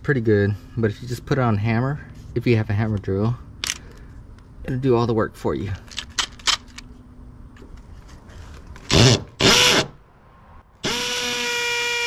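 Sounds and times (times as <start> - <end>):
hammer drill boring into brick: 8.9 - 9.9, 10.8 - 12.0.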